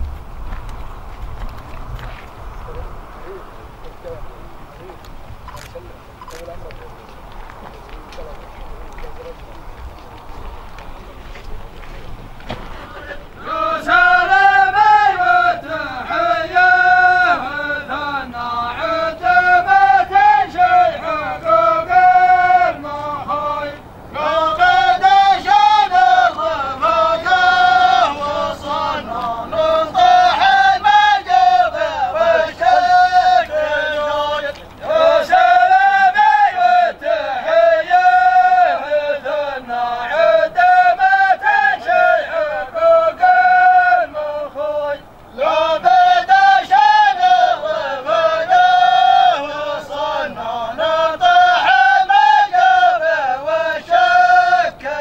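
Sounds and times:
men chanting a song: 0:12.5 - 0:55.0.

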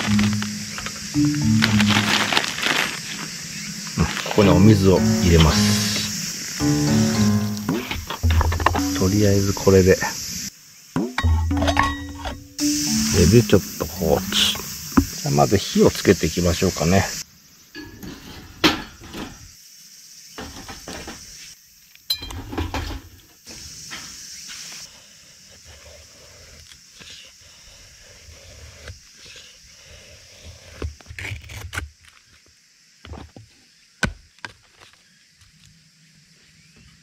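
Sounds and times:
wood knocking and clattering: 0:07.7 - 0:09.2
knife shaving wood: 0:30.2 - 0:32.4.

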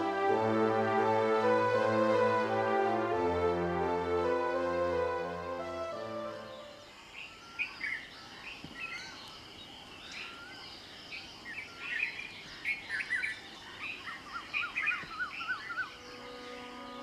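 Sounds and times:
birds chirping: 0:00.0 - 0:17.0
whistled bird notes: 0:05.1 - 0:09.4, 0:10.0 - 0:17.0.

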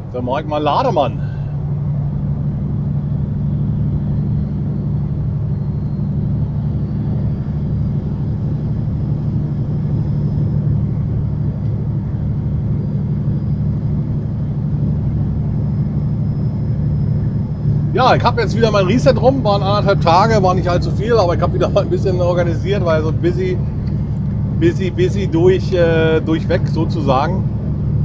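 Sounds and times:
diesel truck engine drone: 0:00.0 - 0:28.0.

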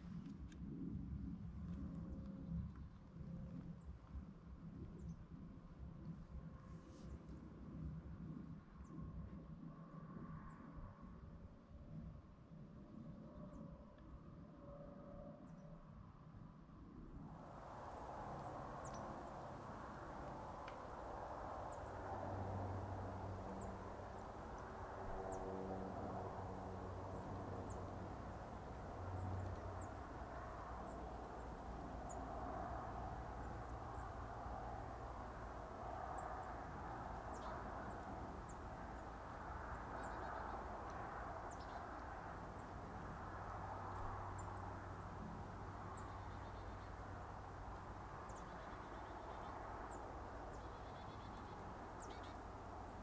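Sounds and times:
low steady rumble: 0:17.6 - 0:53.0
small birds chirping: 0:18.1 - 0:25.6, 0:26.3 - 0:42.8, 0:45.7 - 0:53.0.

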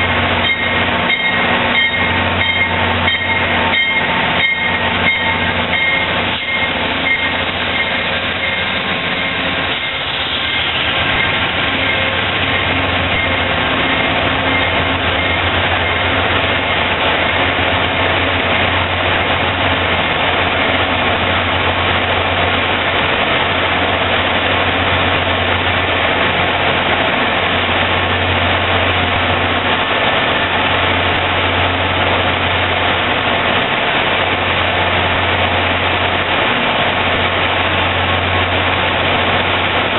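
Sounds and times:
wheels clicking over rail joints: 0:00.0 - 0:21.1
diesel locomotive engine drone: 0:00.0 - 0:39.9.

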